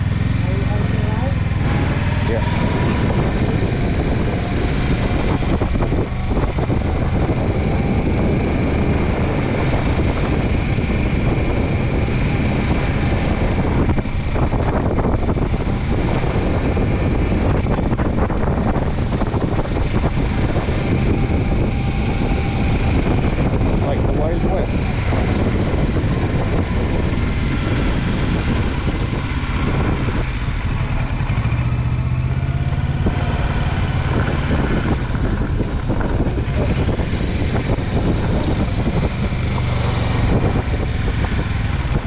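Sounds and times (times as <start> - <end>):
road vehicle running: 0.0 - 42.0
wind over microphone: 0.0 - 42.0.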